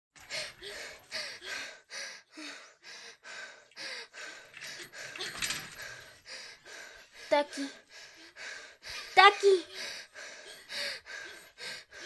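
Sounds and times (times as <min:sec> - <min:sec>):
woman panting: 0:00.2 - 0:12.0.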